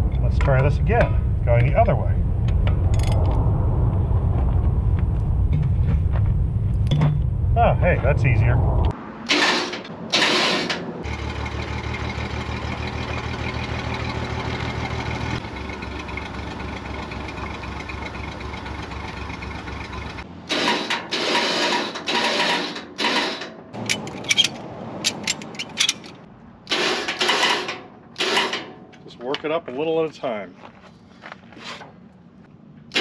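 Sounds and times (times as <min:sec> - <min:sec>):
metal clanks and knocks: 0:06.8 - 0:07.3, 0:20.5 - 0:29.5
engine idling: 0:11.0 - 0:22.6.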